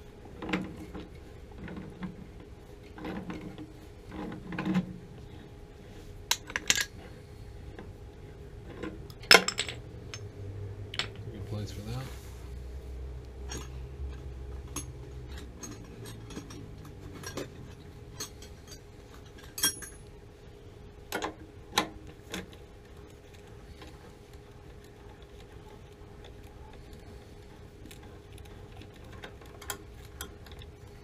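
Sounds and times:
low hum: 0.0s - 31.0s
metallic clinks of fittings: 19.4s - 20.0s.

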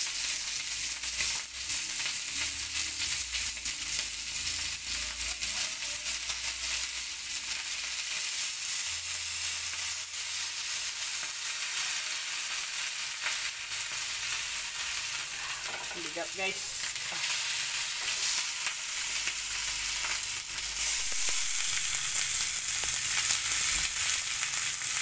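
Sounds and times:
steak sizzling in a frying pan: 0.0s - 25.0s.

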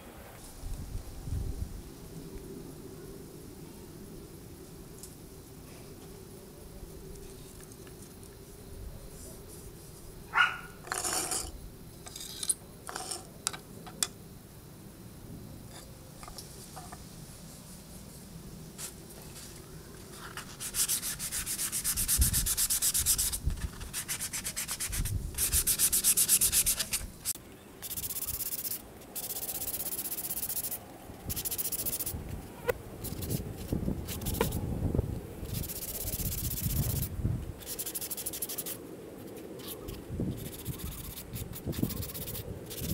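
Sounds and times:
hand sanding wood: 20.4s - 27.1s.

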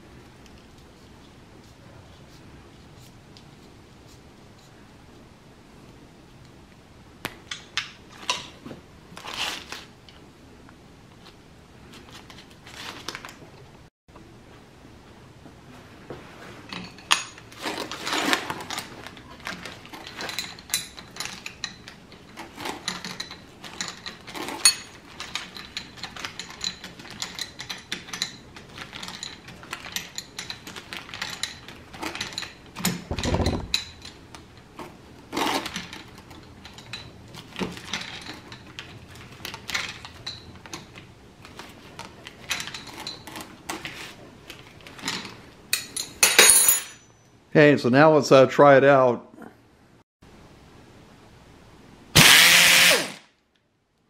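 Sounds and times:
wrenches clinking against metal fitting: 45.0s - 47.2s.

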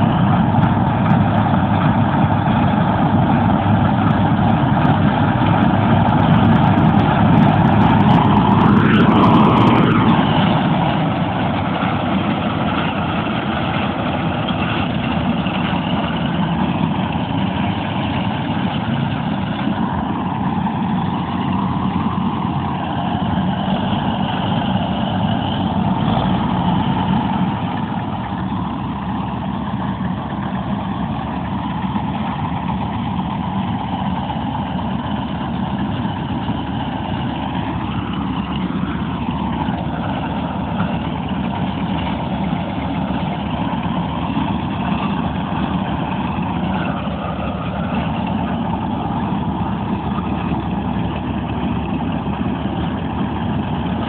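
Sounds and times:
farm machine engine running: 0.0s - 54.0s.

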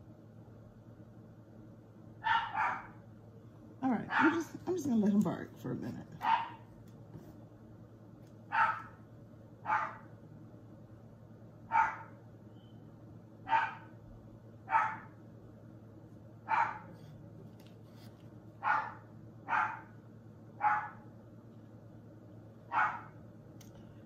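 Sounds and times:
dog barking: 2.2s - 3.0s, 4.1s - 4.5s, 6.2s - 6.6s, 8.5s - 9.0s, 9.6s - 10.1s, 11.7s - 12.2s, 13.4s - 13.9s, 14.7s - 15.2s, 16.5s - 17.0s, 18.6s - 20.0s, 20.6s - 21.0s, 22.7s - 23.2s.

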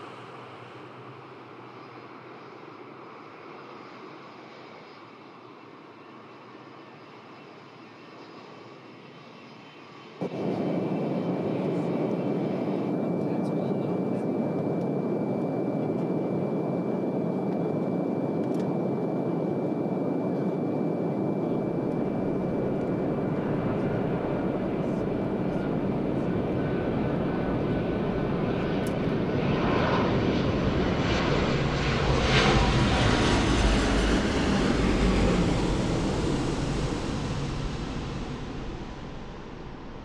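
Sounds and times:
jet airliner engine noise: 0.0s - 40.0s
thin steady whine: 10.2s - 40.0s.

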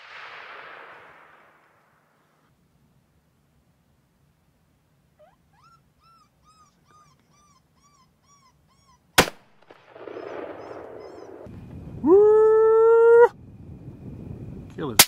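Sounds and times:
gunshot: 0.0s - 2.4s, 9.2s - 10.8s
high squealing call: 10.1s - 11.5s.

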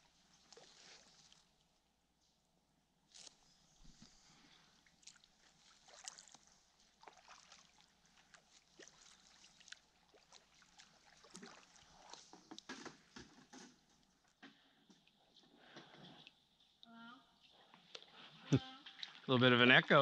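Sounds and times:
paddles dripping and splashing: 0.0s - 1.7s, 3.1s - 14.4s.

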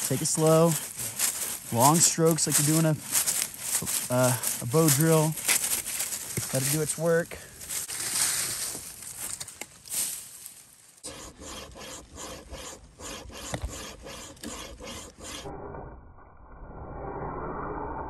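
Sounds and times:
saw rasping through branch: 0.0s - 7.0s, 11.0s - 15.5s
footsteps crunching dry leaves: 0.0s - 11.0s.

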